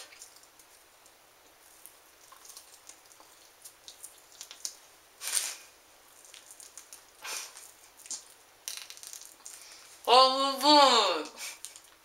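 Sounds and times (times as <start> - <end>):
wet mouth clicks and smacks: 2.2 - 4.8.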